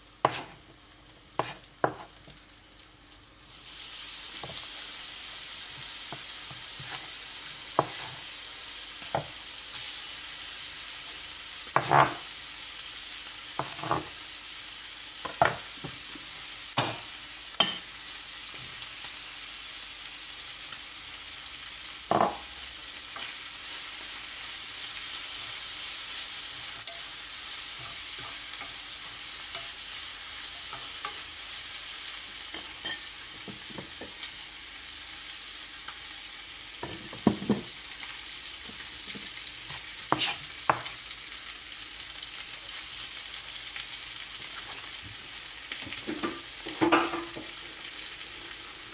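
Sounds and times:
chicken sizzling in a frying pan: 0.0s - 48.9s
utensil scraping a pan: 40.1s - 40.4s.

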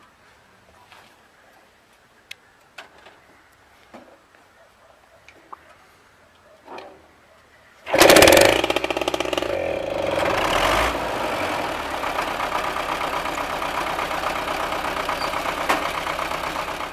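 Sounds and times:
small starter engine running: 7.9s - 16.9s.

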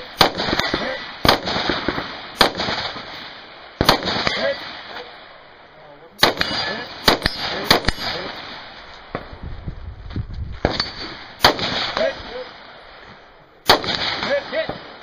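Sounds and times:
rifle shots echoing: 0.0s - 9.4s, 10.6s - 15.0s.

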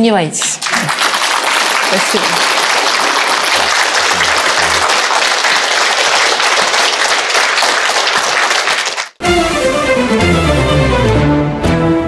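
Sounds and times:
audience applauding: 0.6s - 9.2s.

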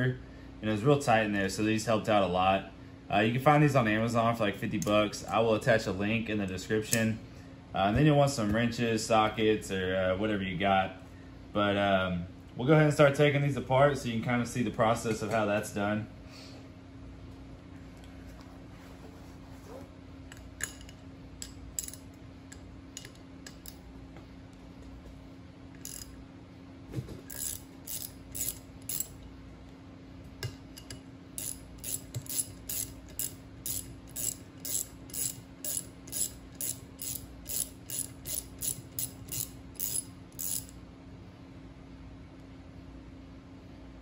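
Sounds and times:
steady low hum: 0.0s - 44.0s
hand ratchet clicking: 20.6s - 22.0s, 25.8s - 26.2s, 27.3s - 29.2s, 30.8s - 40.8s.

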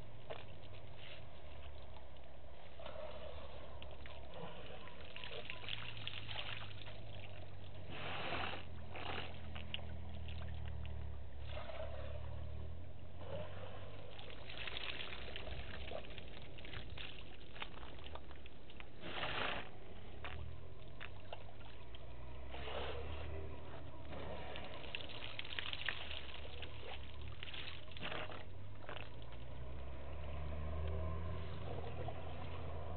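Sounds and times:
elephant drinking water splashing: 0.0s - 32.9s
low steady drone: 19.7s - 25.4s, 29.4s - 32.9s.

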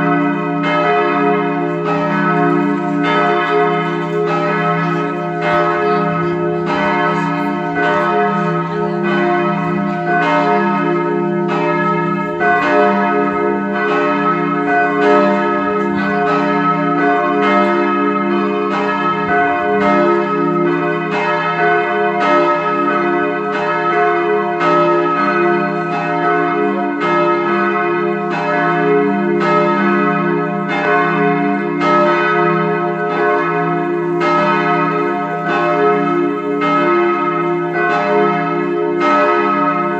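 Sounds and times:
church bells ringing: 0.0s - 39.9s.

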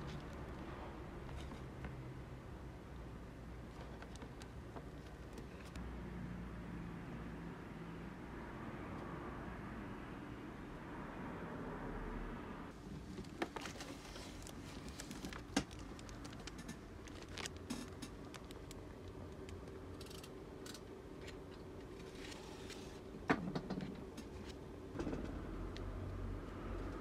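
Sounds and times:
paper pages rustling: 13.0s - 18.8s.

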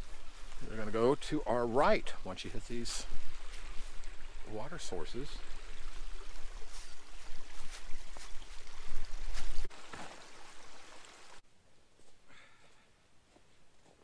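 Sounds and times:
footsteps crunching dry leaves: 0.0s - 0.9s, 3.0s - 4.3s, 5.6s - 10.2s
trickling creek: 0.0s - 12.8s.

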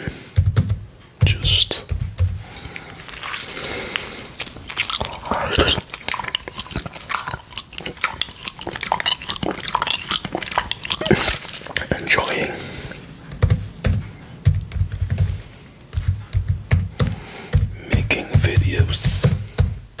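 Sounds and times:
tongue licking glass plate: 2.7s - 12.6s.

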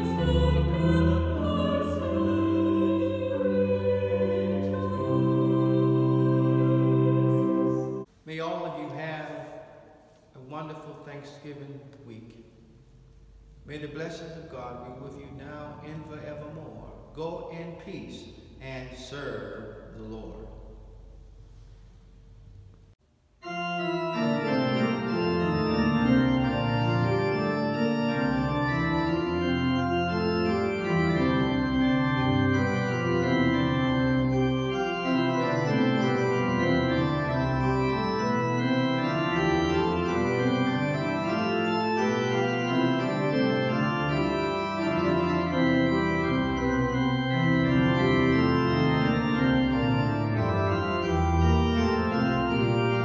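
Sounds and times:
pipe organ chords: 0.0s - 21.4s, 22.1s - 53.0s.

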